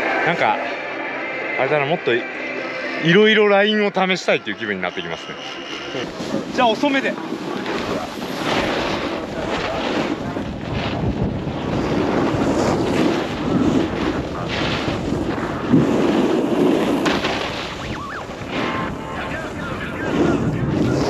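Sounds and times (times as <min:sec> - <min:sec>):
snowboards scraping over snow: 0:05.9 - 0:21.0
wind buffeting microphone: 0:06.0 - 0:17.1, 0:17.7 - 0:21.0.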